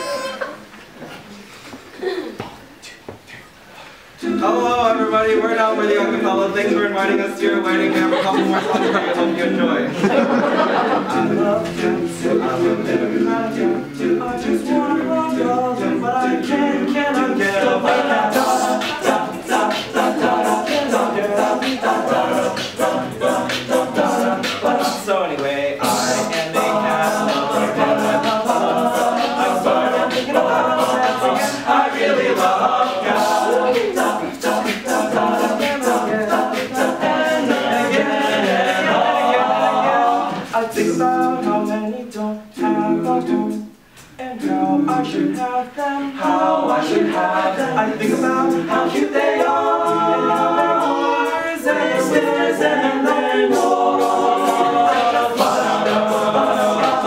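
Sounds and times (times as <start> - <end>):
male voices singing in harmony: 4.2 - 57.0
steady percussive beat: 11.1 - 41.8, 44.4 - 57.0.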